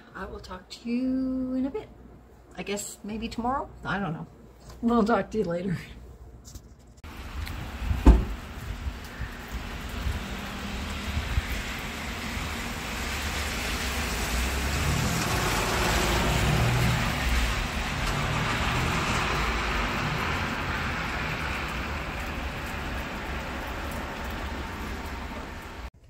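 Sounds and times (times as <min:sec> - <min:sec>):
car driving past on wet road: 0:07.1 - 0:25.9
heavy rain hissing: 0:07.1 - 0:25.9.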